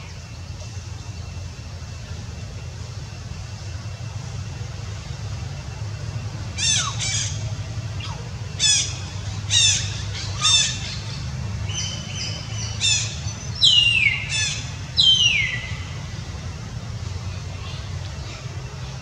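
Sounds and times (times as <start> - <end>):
steady low rumble: 0.0 - 19.0
high-pitched squawking calls: 6.5 - 15.9.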